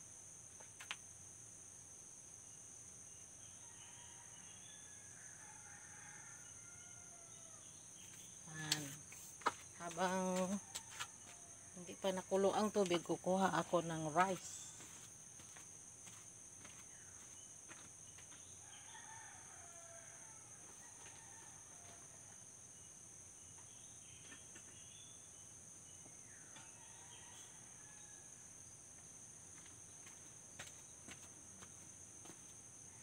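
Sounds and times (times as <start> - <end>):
insects chirring: 0.0 - 33.0
faint roosters crowing: 3.5 - 9.4, 10.0 - 11.8, 17.8 - 23.0, 26.2 - 28.8.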